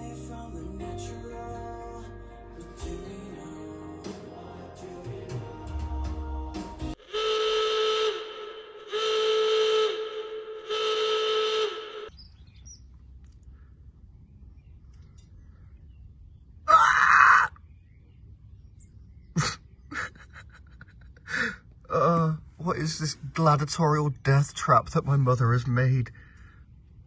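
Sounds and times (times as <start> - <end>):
low outdoor background: 0.0 - 27.0
horn-like alarm blasts: 7.0 - 12.1.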